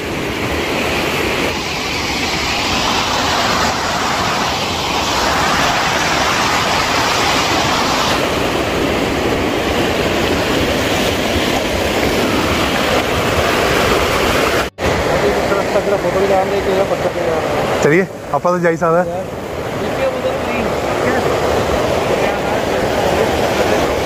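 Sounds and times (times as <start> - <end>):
water rushing over rocks: 0.0 - 24.0.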